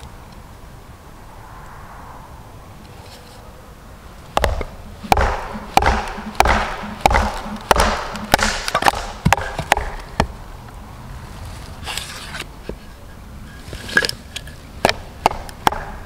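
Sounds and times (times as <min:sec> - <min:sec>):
hatchet chopping wood: 0:04.4 - 0:10.3, 0:14.8 - 0:16.0
sharp wooden knocks: 0:04.4 - 0:10.3, 0:14.8 - 0:16.0.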